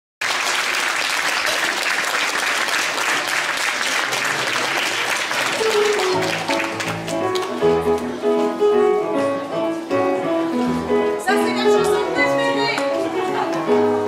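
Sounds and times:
audience applauding: 0.2s - 8.1s
music notes: 5.6s - 14.0s.

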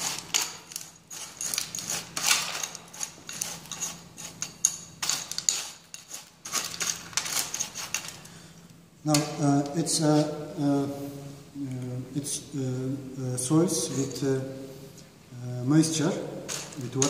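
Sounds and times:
metal scoop scraping metal tray: 0.0s - 8.2s.

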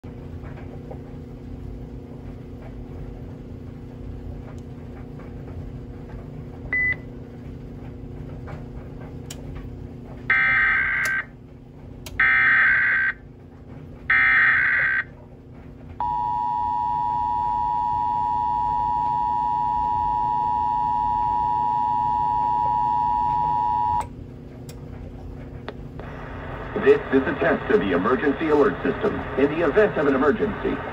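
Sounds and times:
low hum: 0.0s - 30.9s
two-tone attention signal: 16.0s - 24.0s.

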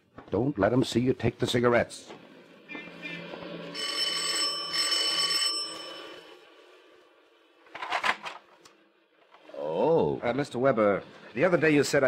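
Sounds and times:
electric doorbell ringing: 3.7s - 6.4s.

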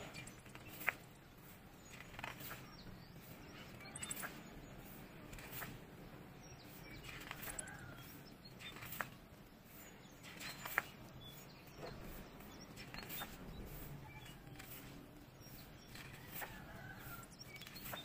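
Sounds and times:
sharp paper flicks: 5.3s - 5.8s, 7.0s - 7.7s, 8.6s - 9.3s, 10.2s - 11.0s.

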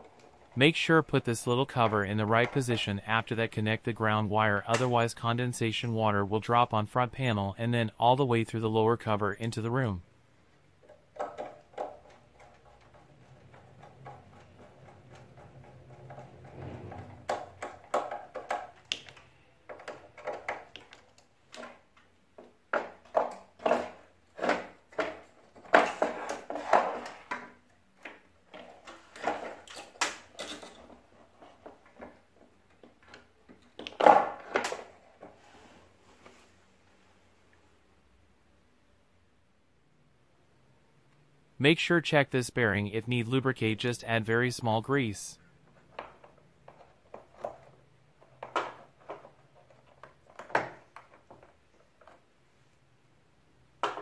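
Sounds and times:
clicks and rattles of plastic parts: 10.8s - 35.4s, 45.6s - 52.3s, 53.8s - 54.0s.

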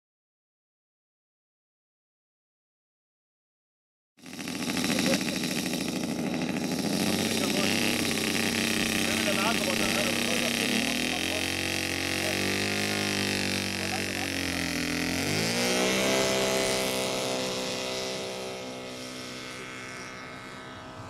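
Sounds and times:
model plane engine revving: 4.2s - 21.0s.

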